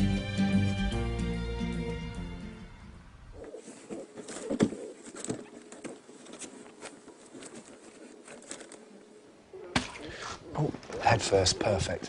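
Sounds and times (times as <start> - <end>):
background music: 0.0 - 3.2
newspaper rustling and crinkling: 3.6 - 9.0.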